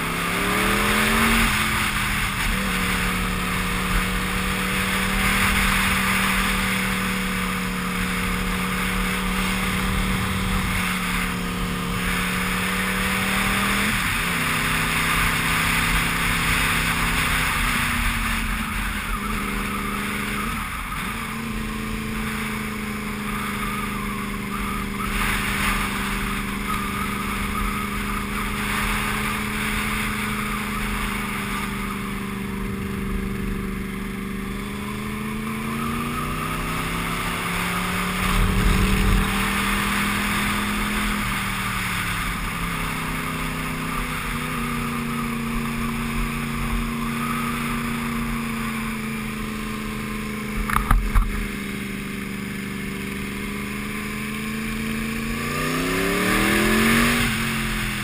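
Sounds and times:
wind rushing over microphone: 0:00.0 - 0:44.7
motorcycle engine under load: 0:00.0 - 0:58.0.

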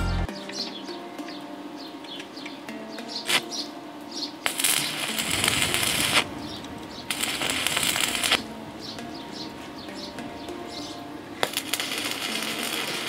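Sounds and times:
welding arc crackling: 0:03.2 - 0:03.5, 0:04.4 - 0:13.0
electrode striking crack: 0:04.5 - 0:13.0.

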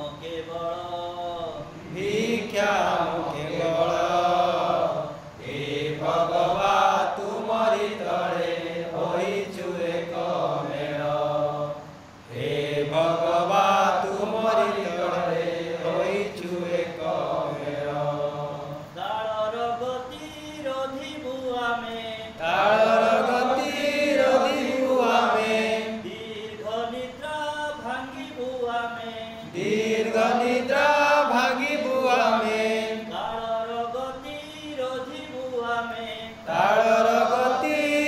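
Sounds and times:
man singing: 0:00.0 - 0:04.3, 0:19.0 - 0:38.0.

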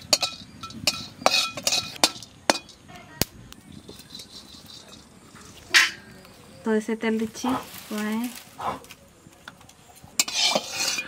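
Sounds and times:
spices clinking in metal pan: 0:00.0 - 0:02.9, 0:03.8 - 0:06.0, 0:10.1 - 0:11.0.

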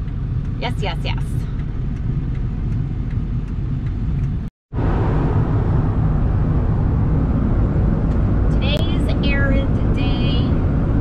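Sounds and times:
road and engine noise in truck cab: 0:00.0 - 0:11.0.

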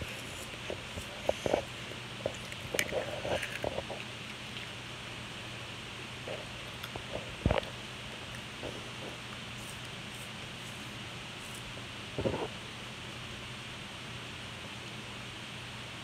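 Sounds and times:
faint low hum: 0:00.0 - 0:16.0
clicks and crunches of eating candy: 0:00.1 - 0:04.8, 0:06.3 - 0:10.2.

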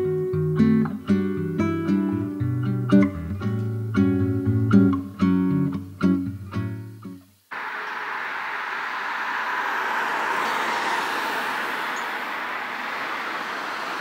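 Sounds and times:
street ambience rushing noise: 0:07.5 - 0:14.0.

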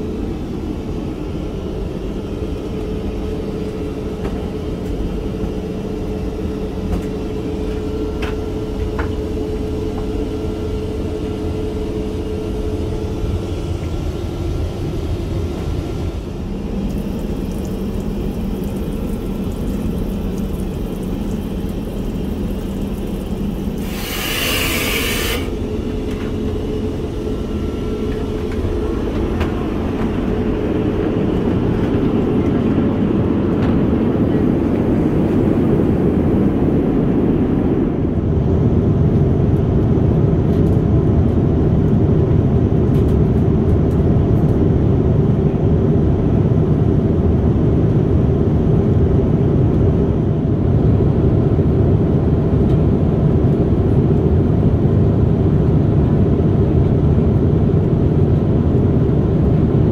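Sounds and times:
airplane cabin rumble: 0:00.0 - 0:59.9
loud rushing hiss: 0:23.8 - 0:25.7.

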